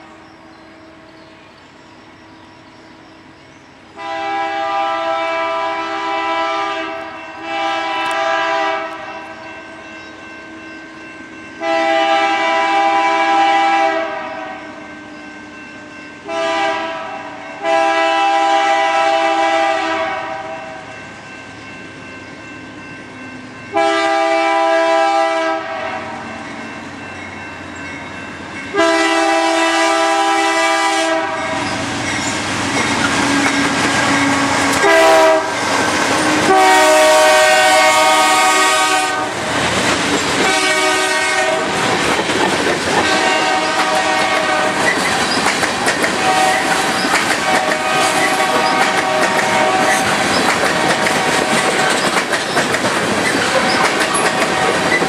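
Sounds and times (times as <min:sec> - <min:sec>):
train rumbling on rails: 0:00.0 - 0:55.0
locomotive air horn blasts: 0:04.0 - 0:09.4, 0:11.6 - 0:14.9, 0:16.2 - 0:20.9, 0:23.7 - 0:26.3, 0:28.7 - 0:31.8, 0:33.2 - 0:39.5, 0:40.4 - 0:41.8, 0:43.0 - 0:44.9, 0:46.2 - 0:50.2.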